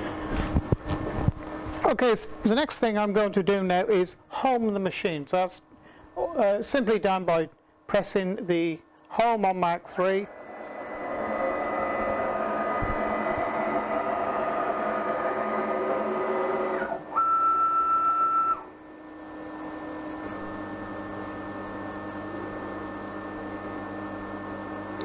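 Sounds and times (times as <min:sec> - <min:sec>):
low machine hum: 0:00.0 - 0:25.0
stepper motors whining: 0:09.9 - 0:18.7.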